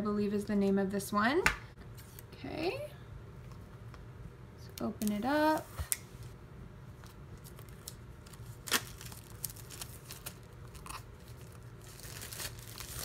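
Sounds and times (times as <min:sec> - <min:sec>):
plastic shrink wrap crinkling: 0:07.4 - 0:13.0.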